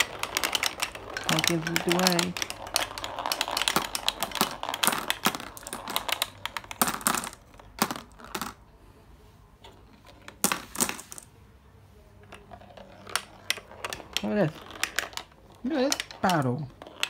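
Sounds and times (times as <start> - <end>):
glass marbles clattering: 0.0 - 8.6, 12.8 - 17.0.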